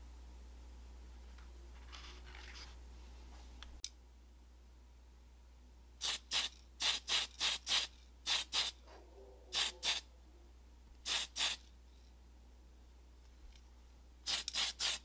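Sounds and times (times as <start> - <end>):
spray paint hissing bursts: 6.0 - 8.8, 9.6 - 10.0, 11.0 - 11.6, 14.2 - 15.0.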